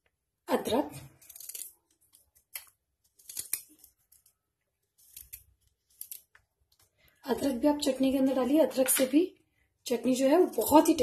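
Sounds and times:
knife cutting ginger: 1.1 - 4.0.

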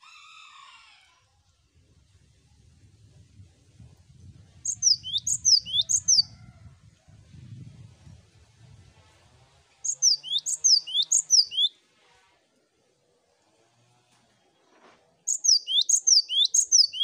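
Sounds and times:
bird singing sharp high notes: 4.7 - 6.2, 9.9 - 11.7, 15.3 - 17.0.

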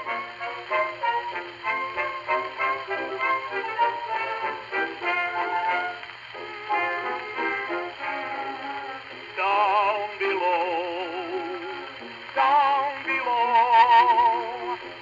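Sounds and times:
person singing with vibrato: 8.0 - 15.0.

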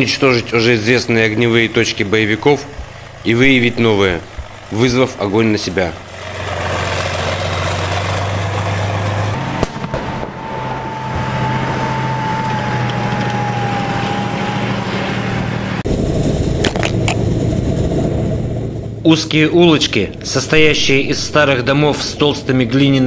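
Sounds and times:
tank engine humming: 0.0 - 23.0
sharp cracks: 1.5 - 10.5, 16.2 - 17.3.

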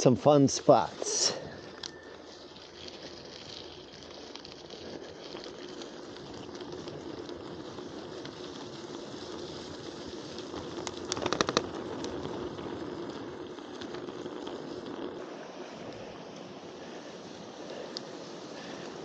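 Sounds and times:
bicycle tyre and wind noise: 0.0 - 19.0
rapid sharp clicks: 10.8 - 12.2.

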